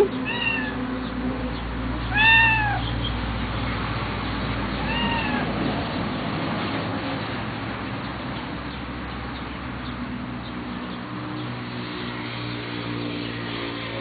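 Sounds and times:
kitten meowing: 0.0s - 0.8s, 2.0s - 2.9s, 4.8s - 5.5s.

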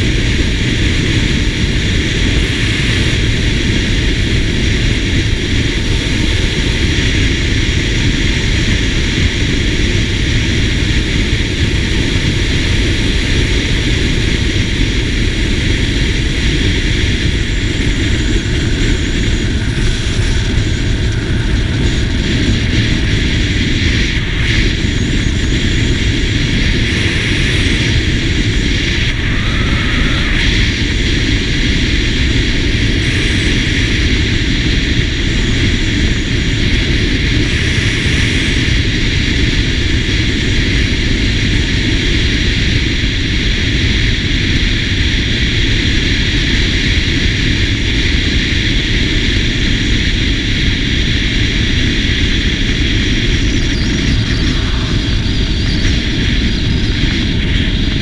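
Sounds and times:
scooter engine and road noise: 0.0s - 44.8s
wind rush over microphone: 0.0s - 58.0s.

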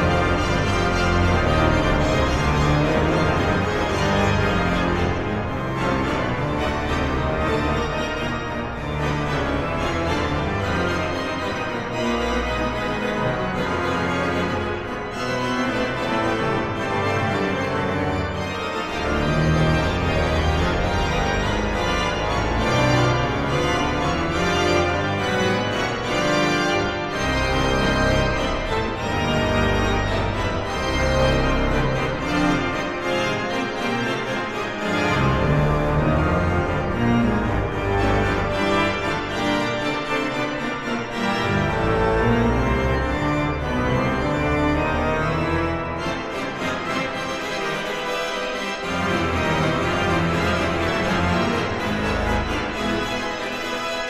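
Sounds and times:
pipe organ playing chords: 0.0s - 54.0s.

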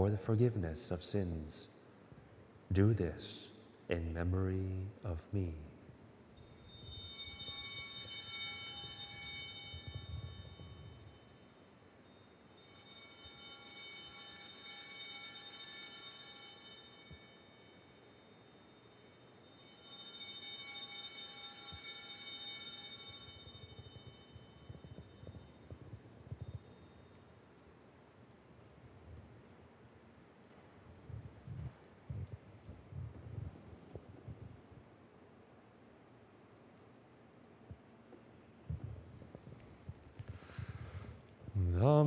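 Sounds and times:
altar bells ringing: 6.3s - 28.0s.

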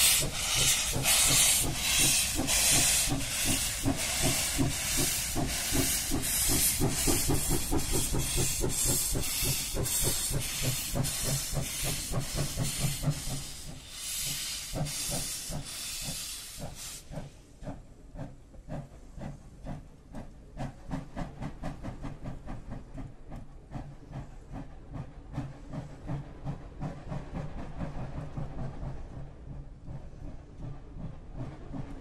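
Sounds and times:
steam hiss: 0.0s - 19.8s
steam locomotive exhaust chuffing: 0.0s - 32.0s.

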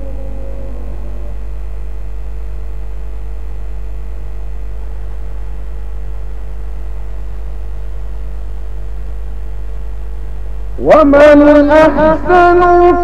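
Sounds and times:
thin high tone: 0.0s - 2.2s
low hum: 0.0s - 12.7s.

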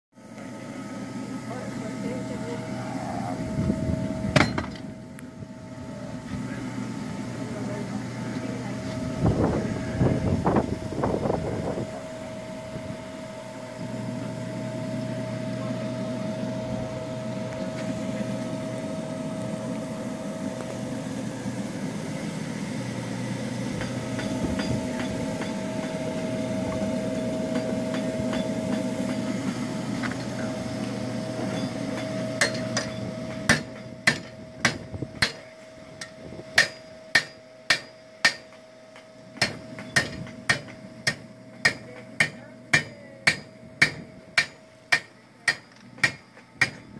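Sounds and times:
mechanical hum with whine: 0.2s - 46.9s
hammer striking iron on anvil: 4.3s - 4.8s, 23.8s - 26.0s, 26.7s - 30.4s, 31.5s - 46.9s.

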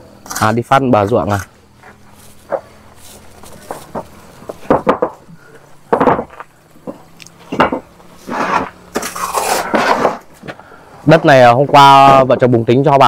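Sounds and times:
sharp knocks and clinks: 5.9s - 7.9s
rasping scrapes: 8.2s - 10.3s.

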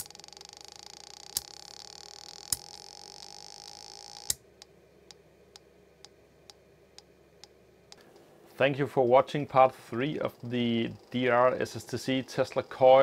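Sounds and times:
speakers buzzing tones: 0.0s - 4.7s.

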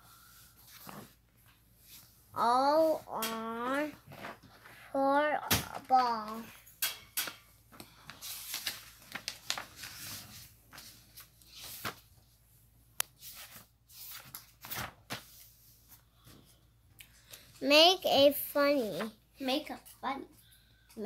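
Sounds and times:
paper pages rustling: 7.7s - 12.4s, 13.0s - 16.6s.

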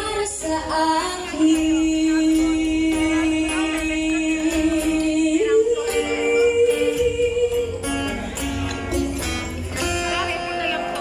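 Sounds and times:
woman singing: 0.0s - 8.4s
acoustic guitar: 0.0s - 11.0s.

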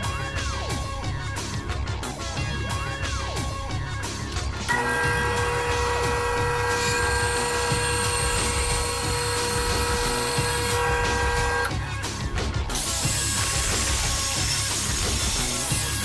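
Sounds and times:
band saw cutting wood: 4.6s - 11.8s, 12.7s - 16.0s.

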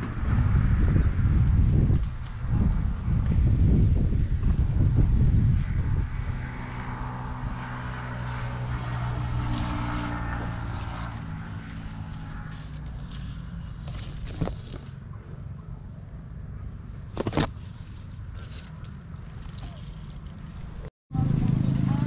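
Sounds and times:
wind buffeting microphone: 0.0s - 15.1s
steady engine hum: 0.0s - 22.0s.

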